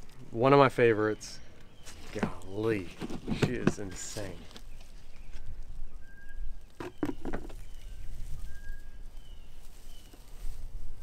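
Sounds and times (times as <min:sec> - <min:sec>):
handling knocks and rustles: 0:01.8 - 0:05.5, 0:06.8 - 0:08.5
faint bird whistles: 0:05.9 - 0:10.2.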